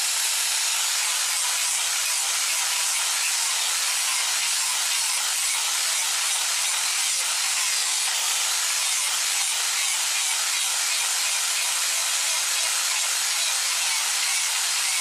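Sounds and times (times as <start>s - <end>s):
electric grinder on wood: 0.0s - 15.0s.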